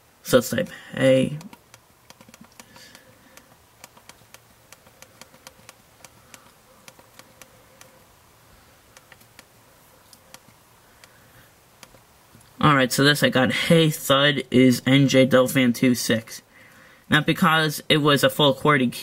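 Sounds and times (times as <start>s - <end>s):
touchscreen clicking: 1.3s - 8.0s, 8.9s - 9.5s, 10.1s - 11.2s.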